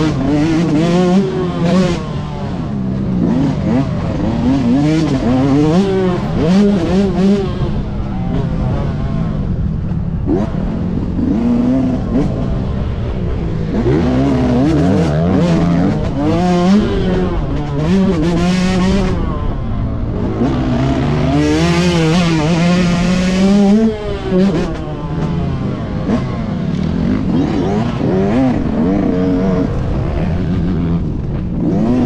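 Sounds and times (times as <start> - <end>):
motorcycle engine revving: 0.0 - 32.0.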